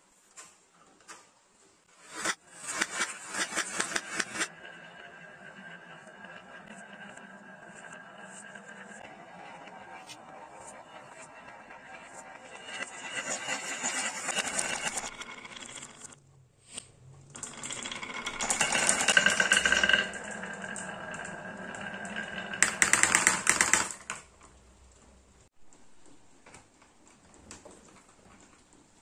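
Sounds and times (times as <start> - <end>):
marbles rolling on wooden slope: 2.0 - 16.2, 17.3 - 24.3
marbles clattering into plastic: 17.4 - 24.2.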